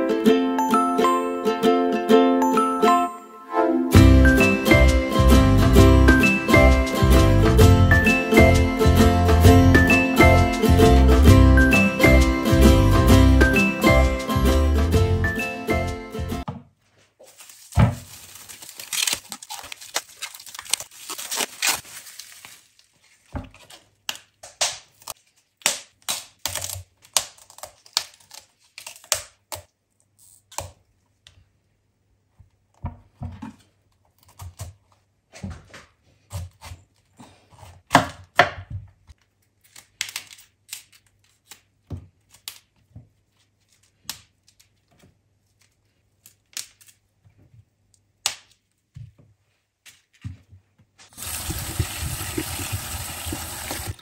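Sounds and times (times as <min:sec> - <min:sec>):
packaging rustling and tearing: 0:17.2 - 0:24.1, 0:26.3 - 0:29.4.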